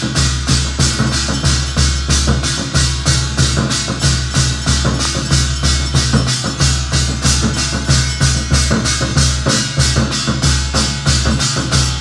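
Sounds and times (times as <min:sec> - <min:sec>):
sharp percussive strikes: 0:00.0 - 0:12.0
steady drum beat: 0:00.0 - 0:12.0.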